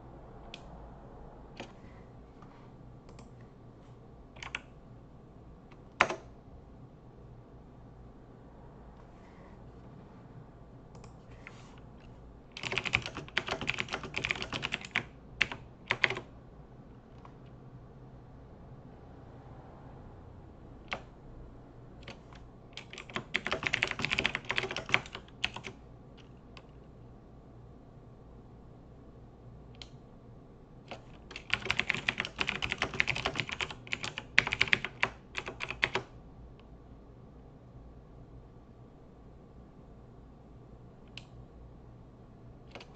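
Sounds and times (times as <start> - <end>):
computer keyboard typing: 1.6 - 1.8, 3.1 - 3.4, 4.3 - 4.7, 5.7 - 6.3, 10.9 - 16.3, 20.8 - 21.1, 22.0 - 26.8, 30.9 - 36.1, 42.7 - 42.9.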